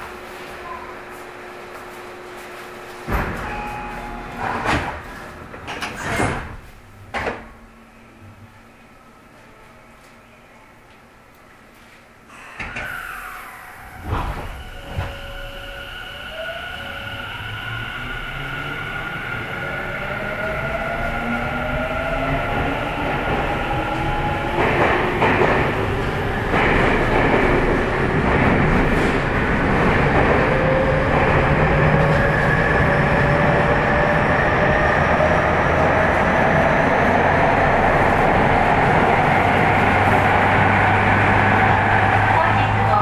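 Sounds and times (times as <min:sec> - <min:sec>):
train doors thudding shut: 0:03.0 - 0:07.6
wheels rumbling on rail: 0:12.8 - 0:43.0.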